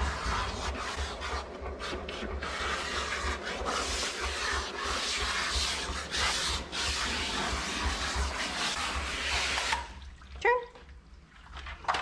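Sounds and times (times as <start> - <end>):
hose nozzle spraying water: 2.4 - 10.0.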